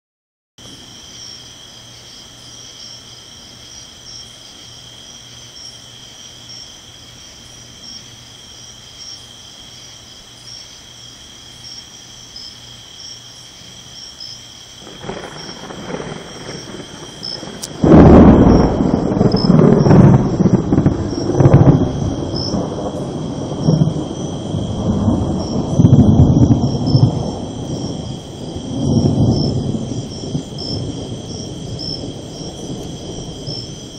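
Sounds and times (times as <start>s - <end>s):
insects chirping: 0.6s - 33.9s
loud thunderclap: 14.8s - 33.9s
thunder rumbling: 14.8s - 33.9s.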